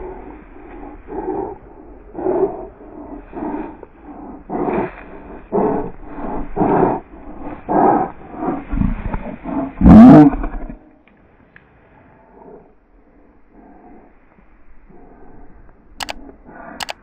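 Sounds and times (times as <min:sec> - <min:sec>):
dog growl-like calls: 0:00.0 - 0:11.0.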